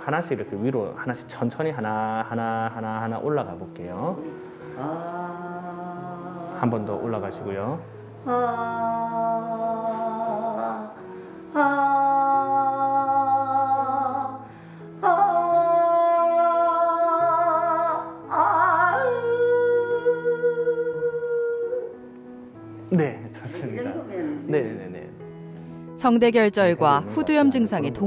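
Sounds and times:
breaths: 4.2s - 4.8s, 11.0s - 11.5s, 14.4s - 15.0s, 25.5s - 25.9s.

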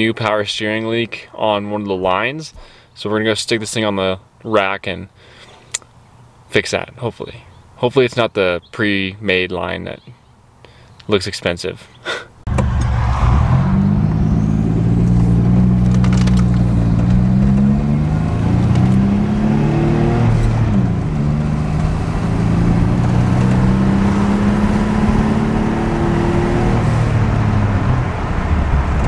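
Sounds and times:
car engine accelerating: 12.5s - 29.0s.

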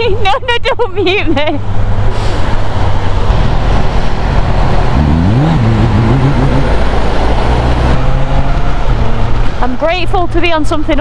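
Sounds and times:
wind rushing over microphone: 1.3s - 11.0s
motorcycle engine: 2.6s - 10.4s.

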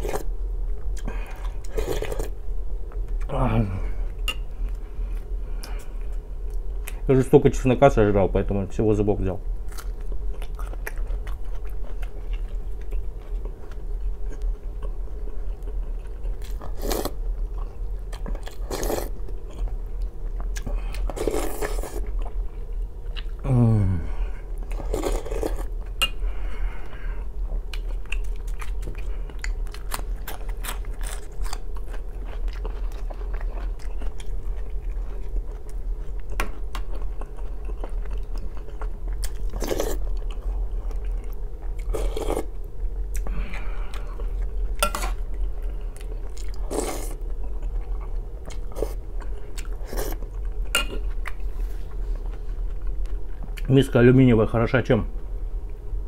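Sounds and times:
throaty vocal sound: 3.3s - 4.0s, 23.4s - 24.4s
chewing bread: 9.7s - 23.4s, 27.5s - 53.7s.

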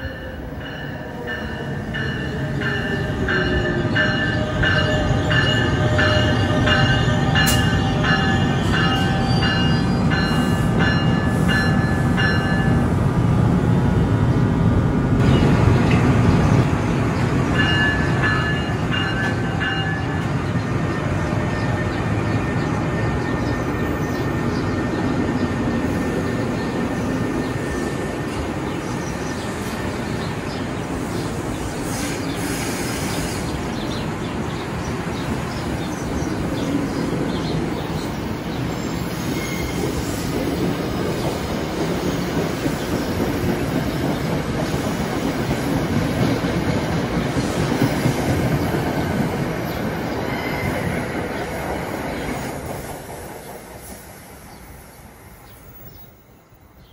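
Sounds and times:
train wheels rumbling on rails: 0.0s - 56.0s
high wheel squeal: 39.0s - 40.3s, 50.2s - 51.1s
clickety-clack over rail joints: 39.3s - 53.9s.

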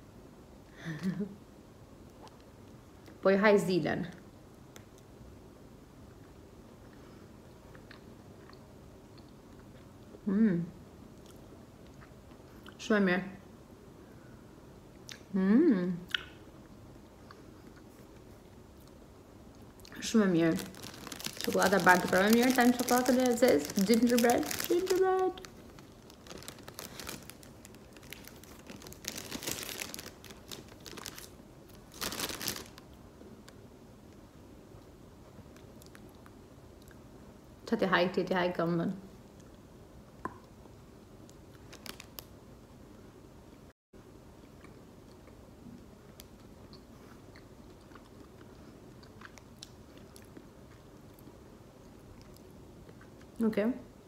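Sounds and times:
cellophane wrapper crinkling: 20.0s - 32.9s, 41.5s - 42.3s
person chewing chocolate: 20.6s - 31.3s, 44.4s - 53.4s.

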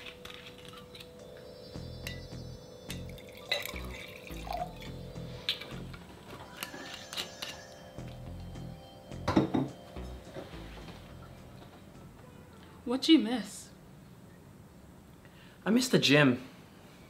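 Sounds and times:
background music with low beat: 1.0s - 12.8s
wine pouring into glass: 3.1s - 5.7s.

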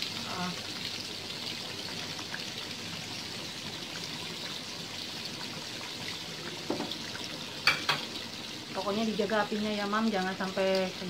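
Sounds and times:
tofu deep-frying in hot oil: 0.0s - 11.0s.

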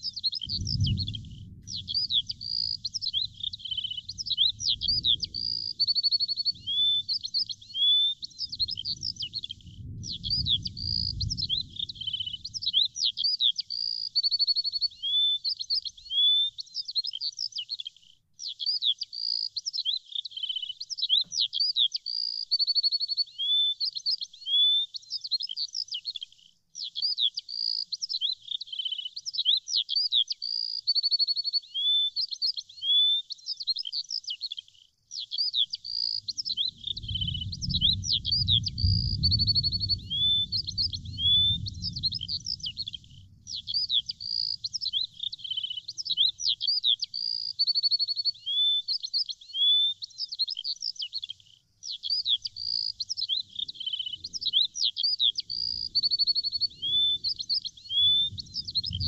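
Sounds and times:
small songbirds chirping: 0.0s - 59.0s
low rumble: 0.6s - 5.5s, 36.9s - 44.0s.

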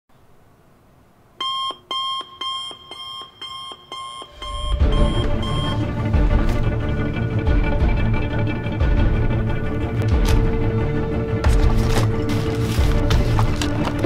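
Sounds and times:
digital alarm clock beeping: 1.4s - 5.8s
music: 4.2s - 14.0s.

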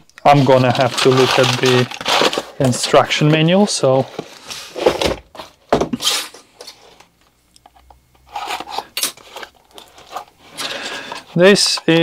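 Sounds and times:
packaging rustling: 0.3s - 5.6s
parts being handled: 0.3s - 12.0s.

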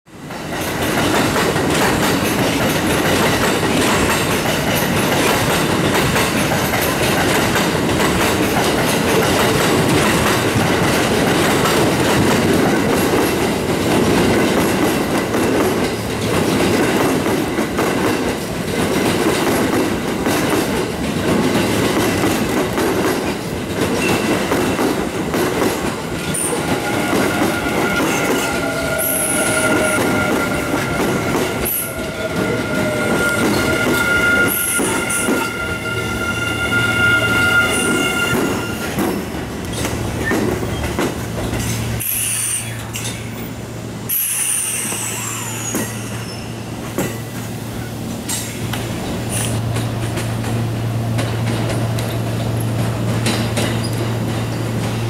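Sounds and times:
electric train rumbling past: 0.1s - 55.0s
wheels clattering over rail joints: 48.3s - 55.0s.

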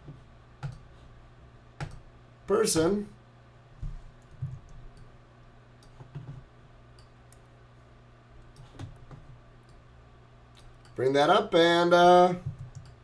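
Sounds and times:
low steady hum: 0.0s - 13.0s
computer mouse clicking: 0.6s - 0.9s, 12.4s - 13.0s.

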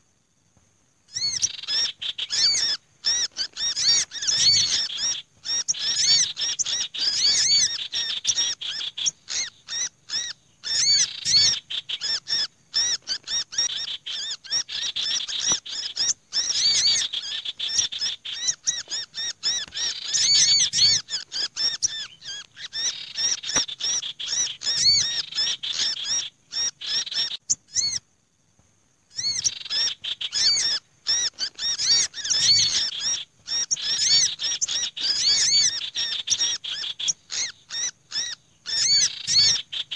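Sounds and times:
small birds chirping and trilling: 1.0s - 28.2s, 29.1s - 39.9s
sunbird chattering: 1.1s - 28.0s, 29.1s - 39.9s
bird alarm call: 1.1s - 28.1s, 29.1s - 39.9s.

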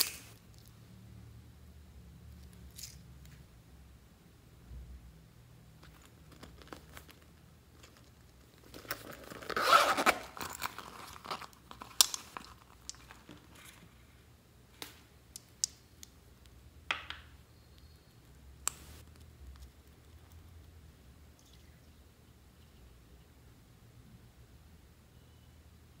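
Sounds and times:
vinyl pencil case crinkling: 5.8s - 13.9s.

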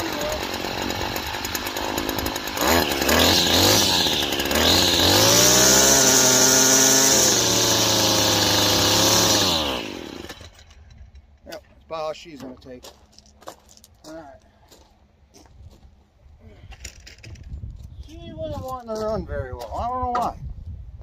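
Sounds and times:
person talking: 0.0s - 0.9s, 11.4s - 13.0s, 14.0s - 14.5s, 18.0s - 20.4s
string trimmer engine running: 0.0s - 11.0s.

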